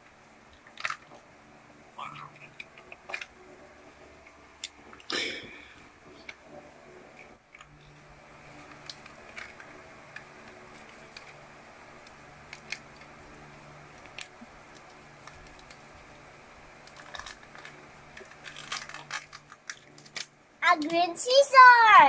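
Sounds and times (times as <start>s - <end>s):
faint hum: 0.0s - 22.0s
foil packet crinkling: 16.8s - 21.0s.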